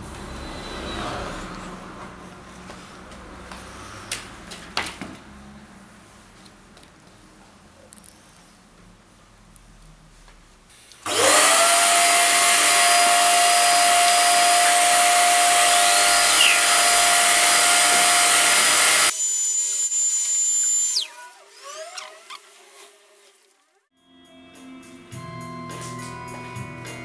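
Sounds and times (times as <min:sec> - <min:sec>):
electric blower motor whine: 0:11.1 - 0:21.1.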